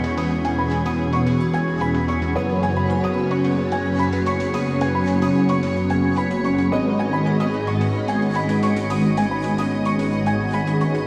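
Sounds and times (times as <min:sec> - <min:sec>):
electronic music with held chords: 0:00.0 - 0:11.0.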